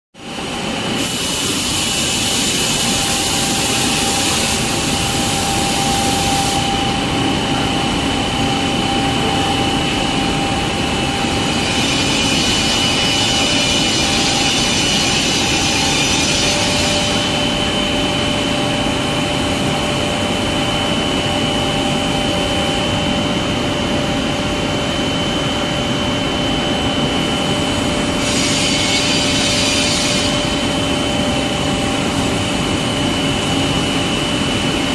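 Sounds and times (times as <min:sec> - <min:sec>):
machine hiss: 0:00.2 - 0:19.6, 0:27.0 - 0:34.9
machine noise with high whine: 0:00.2 - 0:34.9.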